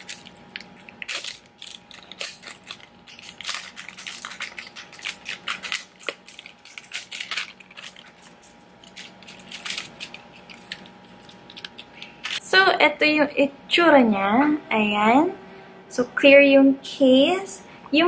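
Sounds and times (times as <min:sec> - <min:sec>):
plastic wrap crinkling: 0:00.0 - 0:12.4.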